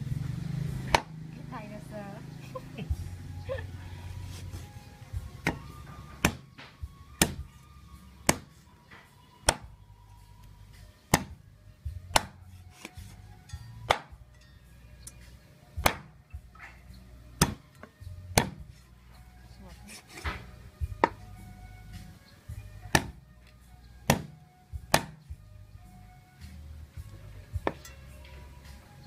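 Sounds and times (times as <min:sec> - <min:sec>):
cleaver chopping fish on wood: 0:00.9 - 0:01.2, 0:05.4 - 0:07.5, 0:08.2 - 0:08.6, 0:09.4 - 0:09.7, 0:11.1 - 0:11.4, 0:12.1 - 0:13.0, 0:13.9 - 0:14.2, 0:15.8 - 0:16.2, 0:17.4 - 0:18.7, 0:20.1 - 0:21.2, 0:22.9 - 0:23.2, 0:24.0 - 0:25.2, 0:27.6 - 0:27.9.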